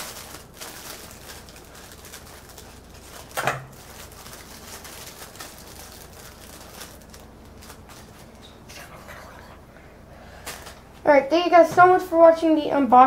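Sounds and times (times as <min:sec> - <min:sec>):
plastic bag handling: 0:00.0 - 0:08.7.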